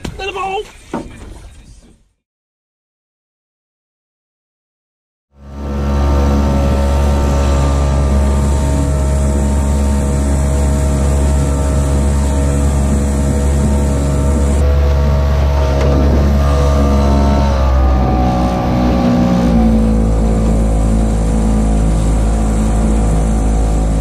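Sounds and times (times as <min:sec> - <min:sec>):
outboard motor running: 0:05.3 - 0:24.0.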